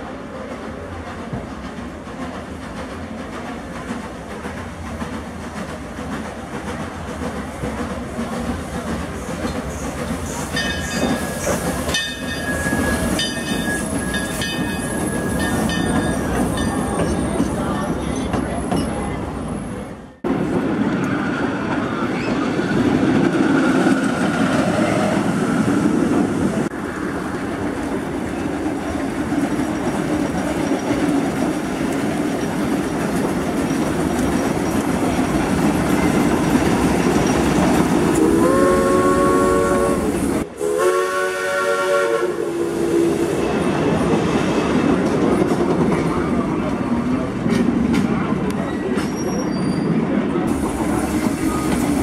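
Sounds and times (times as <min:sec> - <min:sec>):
steam locomotive rumbling: 0:00.0 - 0:52.0
steam whistle blasts: 0:38.2 - 0:43.4.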